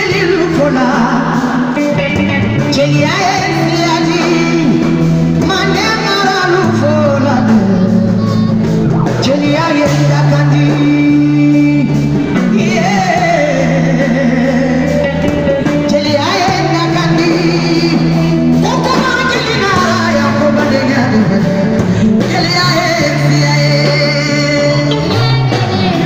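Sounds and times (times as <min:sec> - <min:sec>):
drums: 0:00.0 - 0:26.0
electric guitar: 0:00.0 - 0:26.0
woman singing into microphone: 0:00.0 - 0:26.0.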